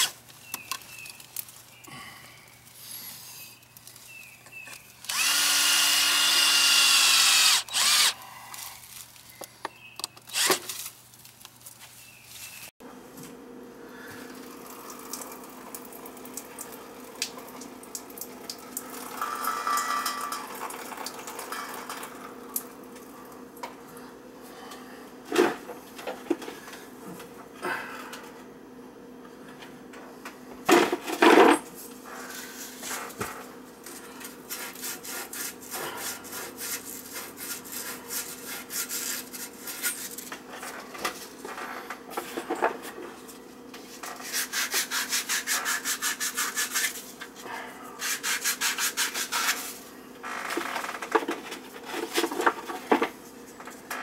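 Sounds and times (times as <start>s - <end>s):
saw cutting pipe: 5.0s - 8.2s, 10.3s - 10.7s, 44.2s - 47.0s, 48.0s - 49.7s.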